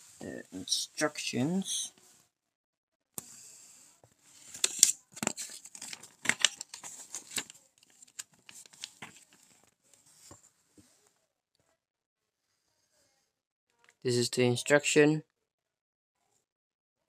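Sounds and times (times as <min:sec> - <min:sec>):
paper crinkling and rustling: 0:04.3 - 0:10.4.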